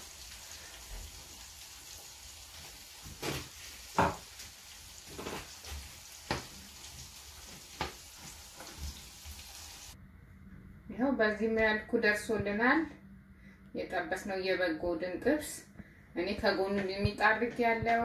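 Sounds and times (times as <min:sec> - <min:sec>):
food sizzling in frying pan: 0:00.0 - 0:10.0.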